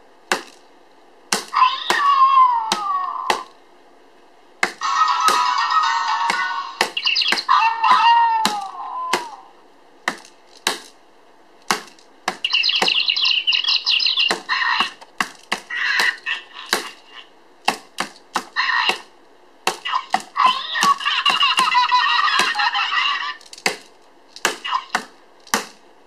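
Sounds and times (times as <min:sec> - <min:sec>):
toy mallet tapping pads: 0:04.7 - 0:09.3.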